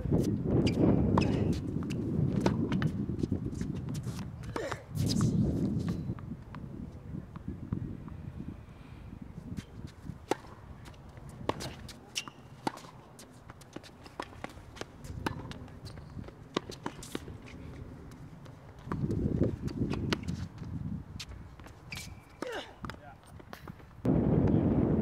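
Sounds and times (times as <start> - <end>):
shoes scuffing on court: 0.1 - 6.6, 9.4 - 24.0
racket striking tennis ball: 9.6 - 17.6.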